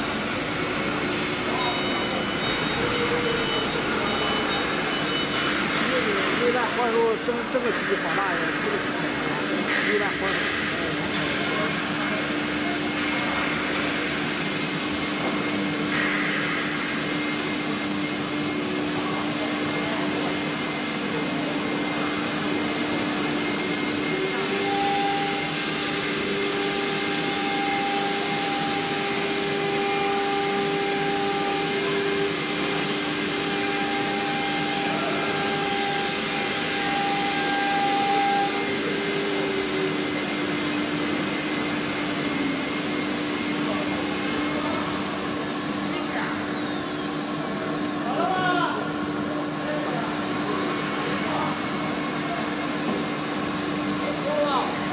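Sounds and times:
higher machine tone: 0.0 - 45.3
router spindle whine: 0.0 - 48.2
cutter engraving wood: 0.2 - 9.0, 15.9 - 47.6.

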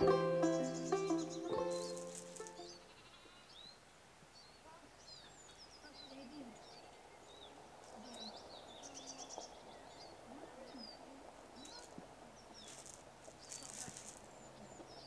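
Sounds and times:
bird trill: 0.0 - 3.8
small birds chirping and whistling: 0.0 - 3.8, 4.4 - 15.0
low steady background hush: 0.0 - 15.0.

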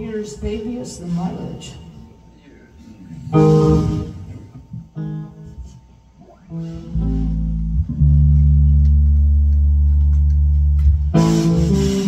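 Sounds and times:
bass guitar notes: 2.0 - 12.0.

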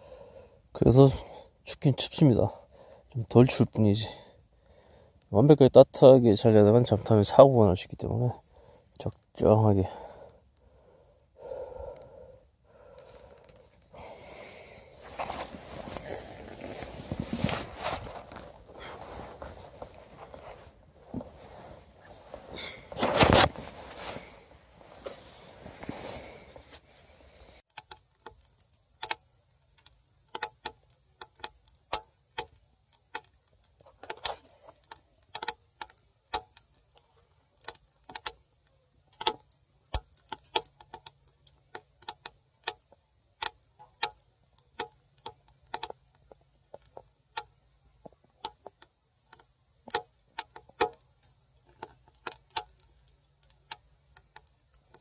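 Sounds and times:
sleeping bag rustling: 14.9 - 27.2
firewood crackling and popping: 27.6 - 55.0.

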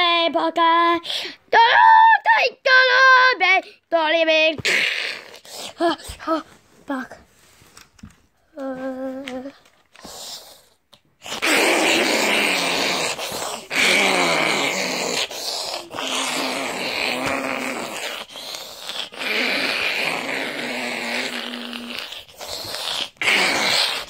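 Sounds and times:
person making harsh vocal noise: 4.5 - 7.0, 11.2 - 24.0.

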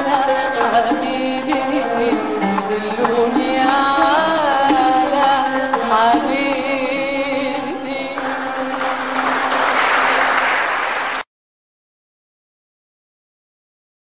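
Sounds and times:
person singing with accompaniment: 0.0 - 9.4
audience applause: 8.4 - 11.3.

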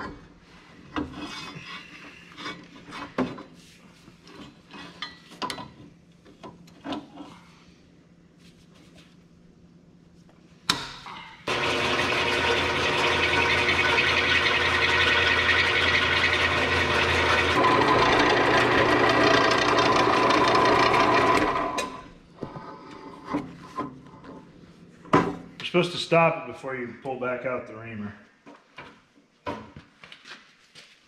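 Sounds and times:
drill press motor running: 11.5 - 22.1.

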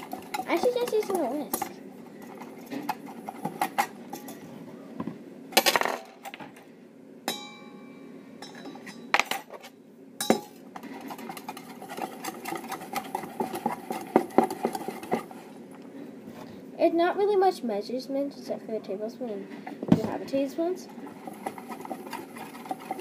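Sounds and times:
whisk and spoon clinking in metal bowl: 0.0 - 4.4, 10.2 - 15.5, 20.3 - 23.0
ringing metal clang: 7.3 - 9.1.

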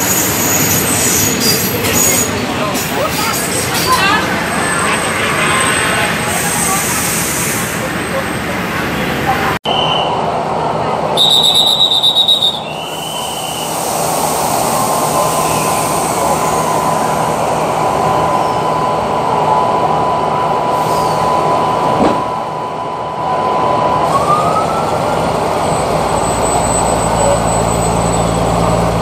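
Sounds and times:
train wheels squealing: 0.0 - 8.2, 11.2 - 19.0, 20.1 - 21.9, 25.6 - 29.0
short high whistle: 9.7 - 10.2, 11.2 - 14.0.

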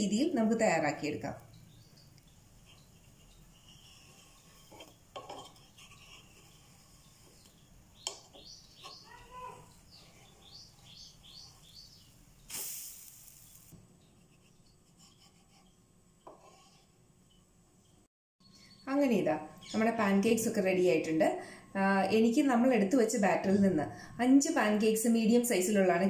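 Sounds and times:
spatula scraping pan: 2.6 - 9.0, 10.0 - 11.6, 14.9 - 17.0.

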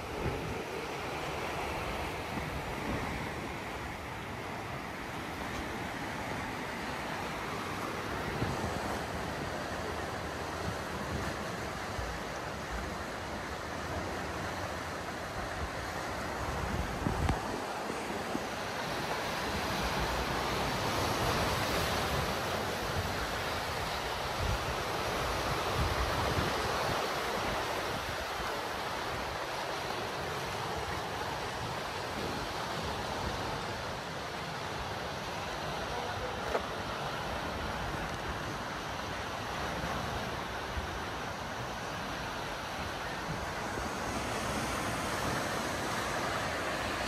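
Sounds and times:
sea waves breaking: 0.0 - 47.0
wind buffeting microphone: 15.4 - 19.0.

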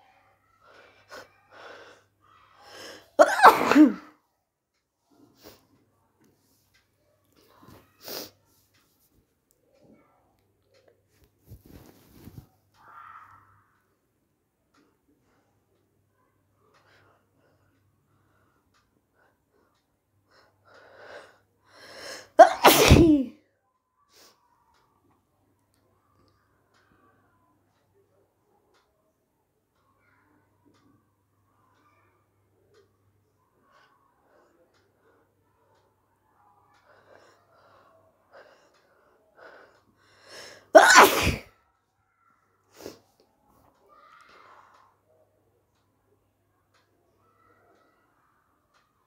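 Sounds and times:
quiet breaths: 0.0 - 3.2, 4.0 - 22.4, 23.4 - 40.7, 41.4 - 49.0
person sneezing: 2.8 - 4.1, 22.1 - 23.3, 40.4 - 41.5.

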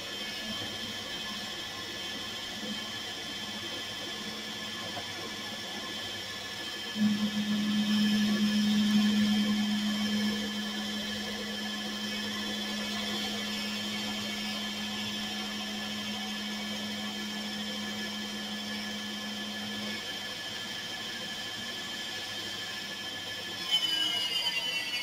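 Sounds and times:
lathe spindle whine: 0.0 - 25.0
low hum: 7.0 - 20.1.

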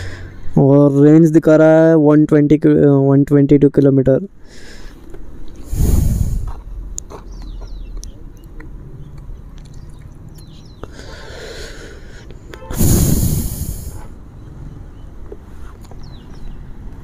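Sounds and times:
wind buffeting microphone: 5.6 - 8.0, 12.7 - 14.0.

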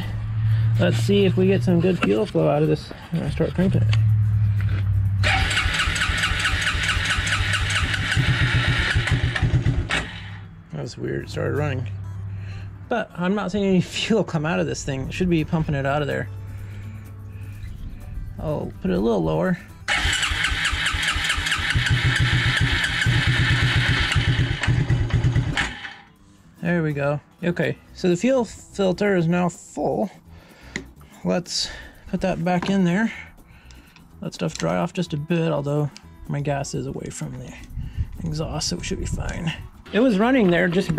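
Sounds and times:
engine running roughly: 0.0 - 10.4, 19.9 - 26.0
electric starter cranking engine: 5.2 - 10.4, 19.9 - 26.0.

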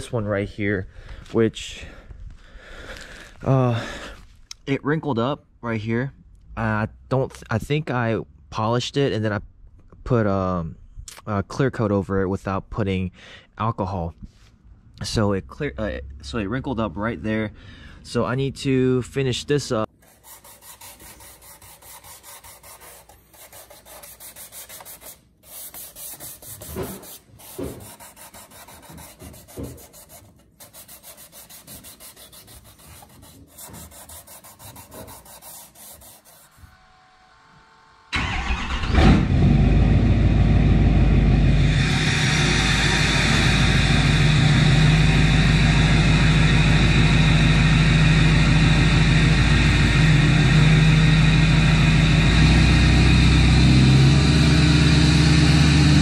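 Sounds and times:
hand pad sanding plastic: 20.0 - 36.8
diesel pickup engine running: 38.2 - 56.0.

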